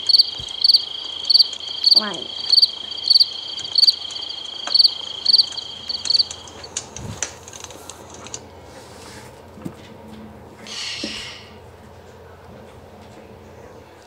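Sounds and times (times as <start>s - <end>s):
crickets chirping: 0.0s - 6.9s
faint clicks: 0.2s - 8.4s.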